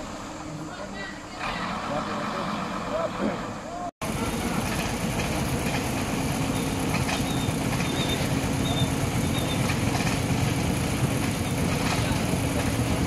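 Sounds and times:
diesel truck engine droning: 0.0s - 13.0s
short high squeaks: 7.1s - 9.7s.

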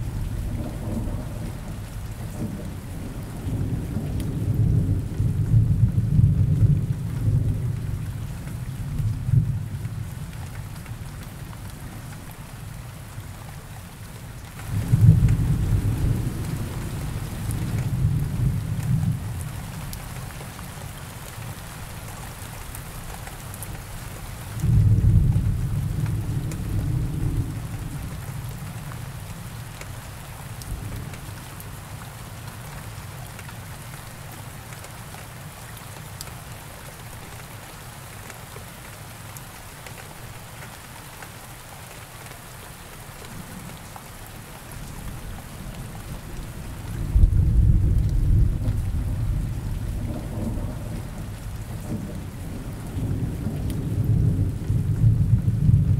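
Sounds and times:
steady rain hiss: 0.0s - 55.9s
thunder rolling: 46.7s - 55.9s.

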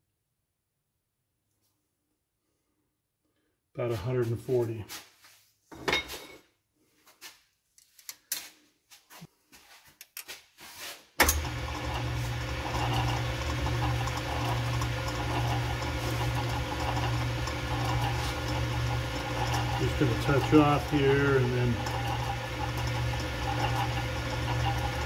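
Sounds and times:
lathe motor humming: 11.3s - 25.0s.

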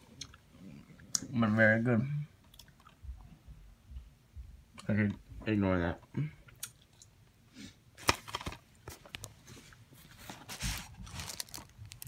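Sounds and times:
cellophane wrap crinkling: 10.1s - 12.0s.

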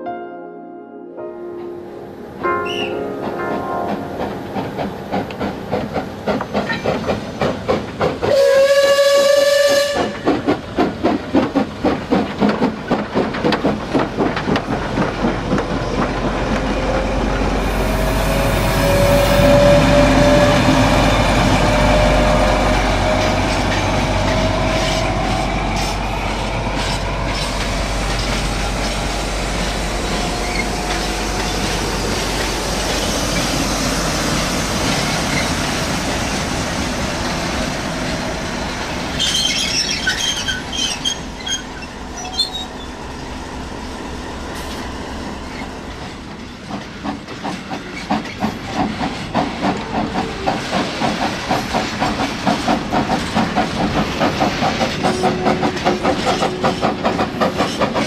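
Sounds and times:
steam locomotive chuffs: 4.2s - 58.0s
rising squeal: 16.6s - 36.6s, 37.2s - 46.6s.

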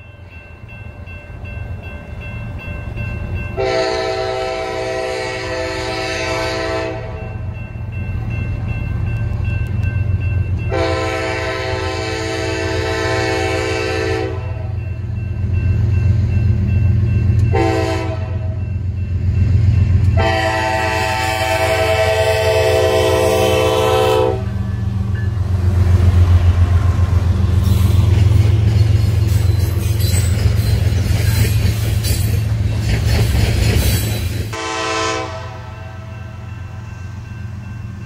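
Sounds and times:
train rumble: 0.0s - 38.0s
locomotive air horn blasts: 3.6s - 7.2s, 10.7s - 14.7s, 17.5s - 18.6s, 20.2s - 24.6s, 34.5s - 36.1s.

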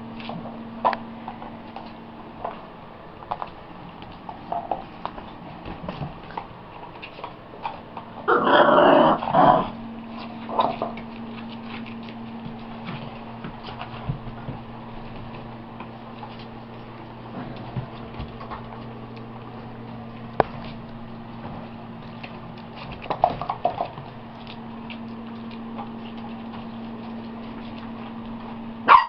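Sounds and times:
paws clicking on floor: 0.0s - 8.3s, 9.7s - 28.9s
steady low hum: 0.0s - 29.0s
puppy growling: 7.6s - 12.0s.

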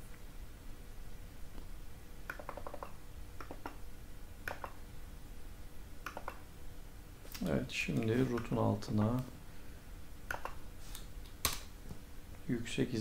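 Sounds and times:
low steady hum: 0.0s - 13.0s
mouse and keyboard clicking: 2.3s - 3.8s, 4.5s - 4.8s, 6.0s - 6.4s, 10.3s - 10.6s.

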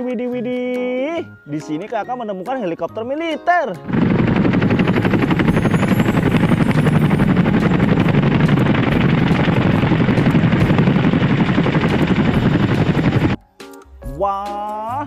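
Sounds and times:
helicopter rotors chopping: 3.8s - 13.4s.

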